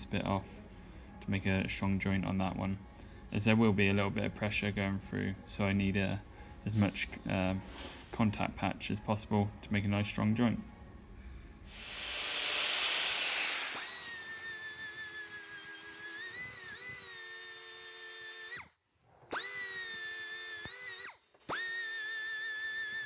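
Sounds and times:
die grinder whining: 11.7 - 23.0.

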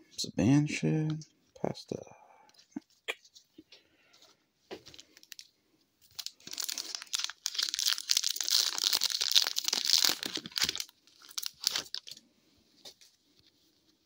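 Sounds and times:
foil wrapper tearing and crinkling: 6.0 - 12.2.

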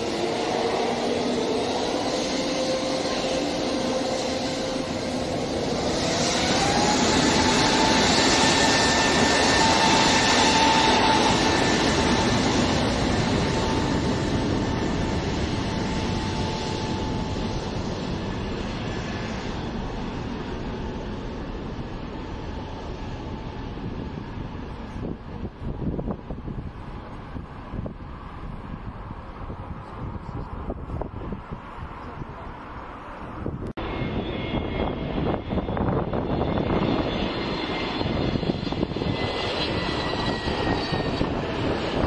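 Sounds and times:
jet engines whining: 0.0 - 42.0.

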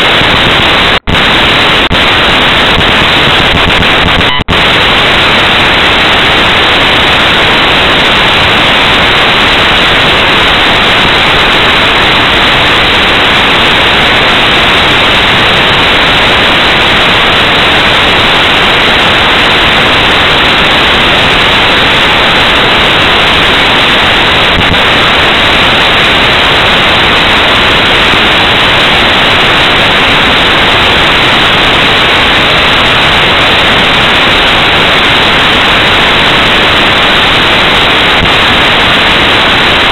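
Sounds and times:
recorder static hiss: 0.0 - 39.9.

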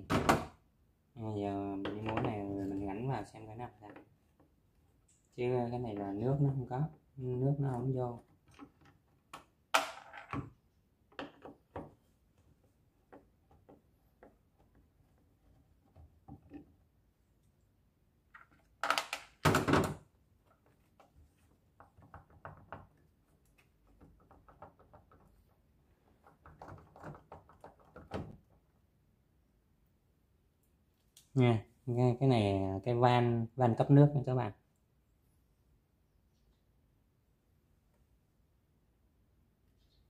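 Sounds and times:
small plastic knocks: 18.3 - 20.0, 21.7 - 28.7.

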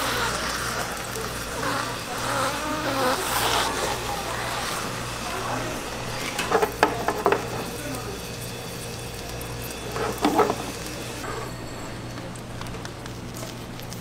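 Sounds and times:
spatulas scraping a griddle: 0.0 - 7.9, 9.8 - 11.7
hot oil sizzling: 0.0 - 14.0.

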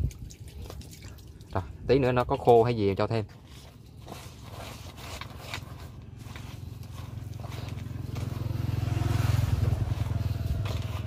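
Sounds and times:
motorbike engine running: 5.2 - 11.0.

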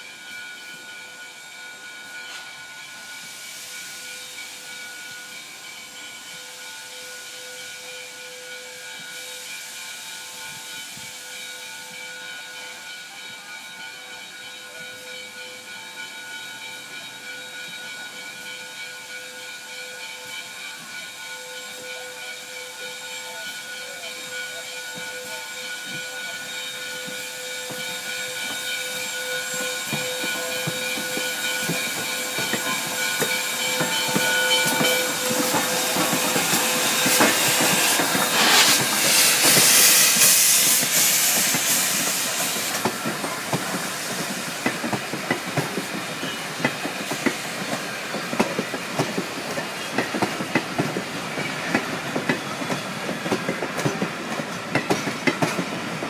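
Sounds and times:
hiss of steam: 0.0 - 56.0
steam train whistle: 16.8 - 44.2.

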